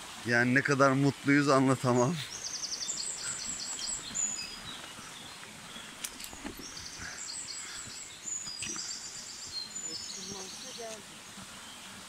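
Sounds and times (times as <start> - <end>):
stream rushing: 0.0 - 12.0
birds singing high notes: 1.5 - 6.0, 6.6 - 11.1
footsteps on forest path: 2.2 - 11.7.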